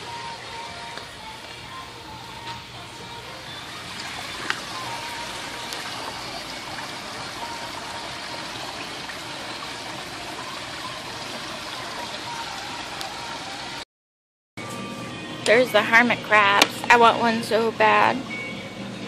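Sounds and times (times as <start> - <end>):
water trickling into pool: 3.6 - 13.8.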